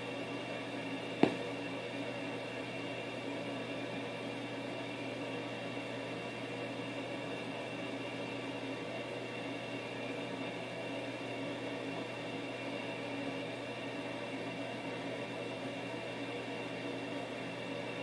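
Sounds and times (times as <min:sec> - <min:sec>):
fan or appliance humming: 0:00.0 - 0:18.0
sharp tap: 0:01.2 - 0:01.5.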